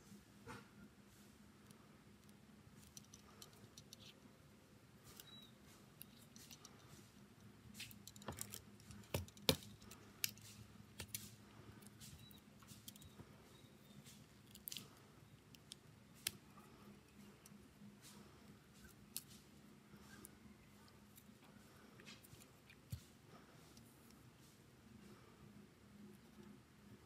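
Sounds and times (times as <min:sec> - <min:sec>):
faint steady hum: 0:00.0 - 0:27.0
small tools clicking and tapping: 0:02.2 - 0:04.2, 0:05.1 - 0:13.2.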